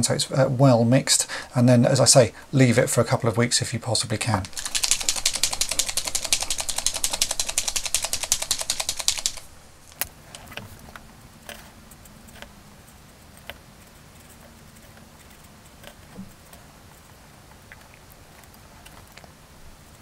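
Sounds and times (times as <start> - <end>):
paint marker ball rattling: 4.4 - 9.5.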